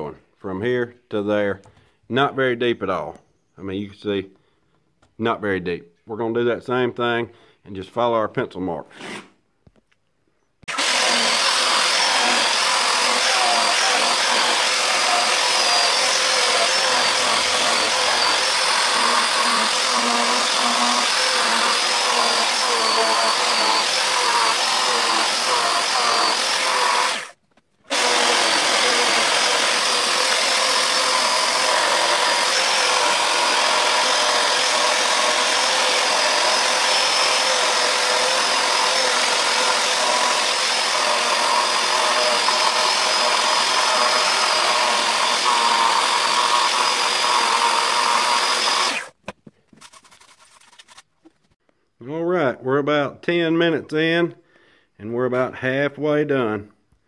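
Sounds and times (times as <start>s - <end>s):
electric chainsaw cutting wood: 10.7s - 49.2s.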